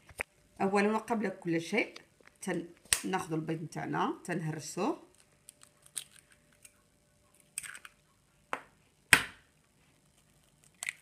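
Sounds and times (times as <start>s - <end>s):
eggshells cracking: 5.1s - 6.8s, 7.4s - 8.0s, 10.4s - 11.0s.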